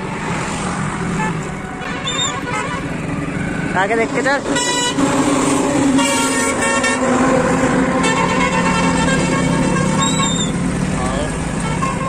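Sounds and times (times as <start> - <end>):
passing traffic: 0.0 - 12.0
vehicle horns honking: 1.2 - 3.0, 4.4 - 5.2, 5.9 - 7.3, 7.9 - 10.6, 11.2 - 12.0.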